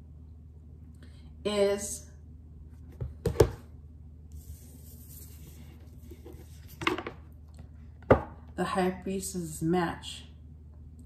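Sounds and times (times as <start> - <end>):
card sliding rustle: 4.4 - 6.8.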